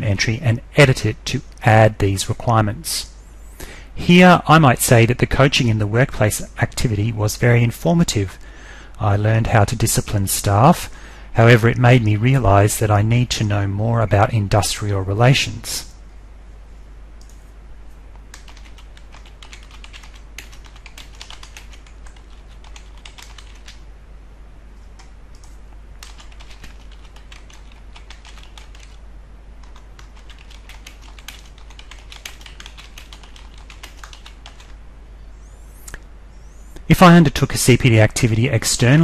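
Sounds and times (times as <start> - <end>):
computer keyboard typing: 18.3 - 23.8, 25.0 - 29.0, 29.6 - 34.7.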